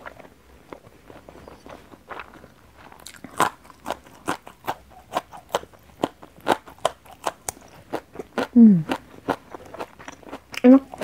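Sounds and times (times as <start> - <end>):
crisp crunching while chewing: 0.0 - 11.0.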